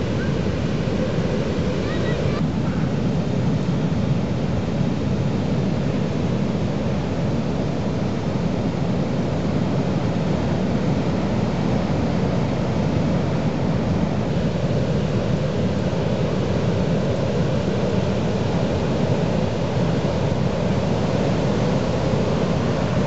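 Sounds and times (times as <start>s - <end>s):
heavy surf breaking: 0.0s - 7.1s.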